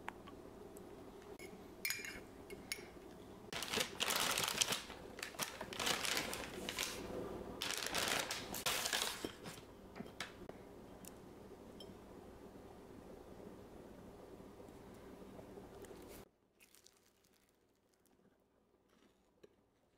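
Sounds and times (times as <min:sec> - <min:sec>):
paper bag crinkling: 0:03.5 - 0:09.6, 0:16.0 - 0:18.2.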